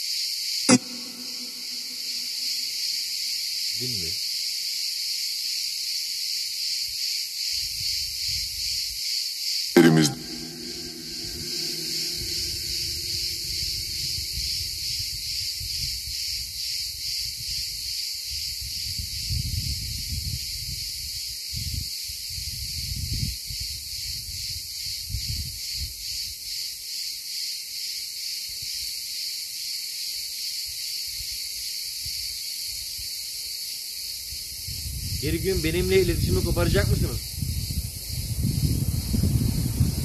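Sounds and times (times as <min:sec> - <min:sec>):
insects chirring: 0:00.0 - 0:40.0.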